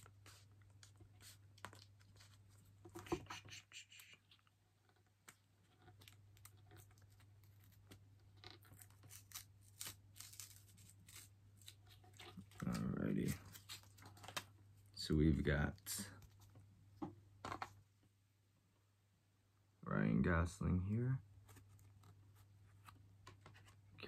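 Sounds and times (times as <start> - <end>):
paper rustling: 5.9 - 14.6.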